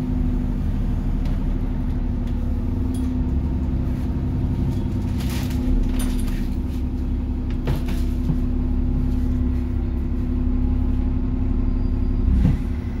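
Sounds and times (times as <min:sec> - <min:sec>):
bus diesel engine running: 0:00.0 - 0:13.0.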